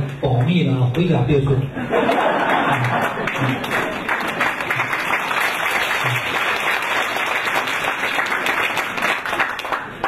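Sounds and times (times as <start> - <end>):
audience applauding: 2.1 - 10.0.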